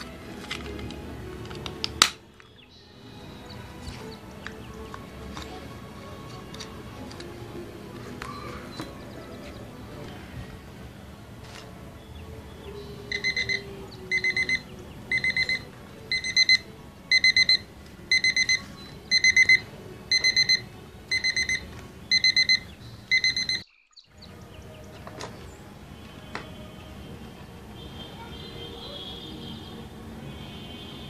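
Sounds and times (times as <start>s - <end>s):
alarm clock beeping: 13.1s - 23.7s.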